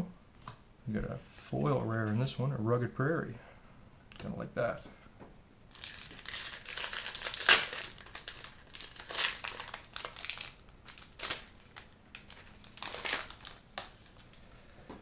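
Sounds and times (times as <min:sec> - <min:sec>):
foil wrapper crinkling: 0:05.7 - 0:14.6.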